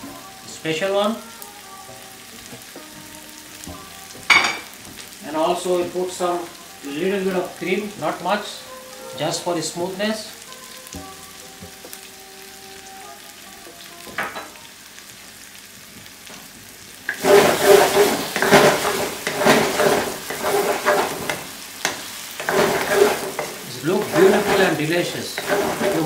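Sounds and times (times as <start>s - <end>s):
gravy sizzling in a wok: 0.0s - 26.0s
wooden spatula scraping through gravy: 17.1s - 21.5s, 22.4s - 26.0s.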